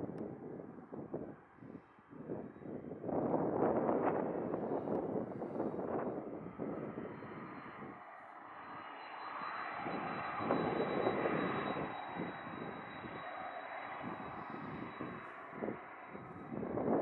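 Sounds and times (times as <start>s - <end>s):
jet engines rushing: 4.3s - 17.0s.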